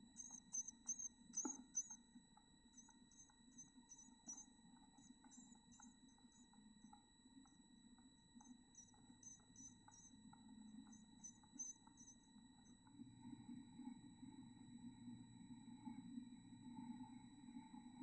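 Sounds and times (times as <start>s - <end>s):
faint high whine: 0.0s - 18.0s
faint ticks: 0.0s - 18.0s
rapid high-pitched chirps: 0.1s - 2.0s, 2.7s - 6.5s, 8.4s - 10.2s, 10.8s - 12.7s.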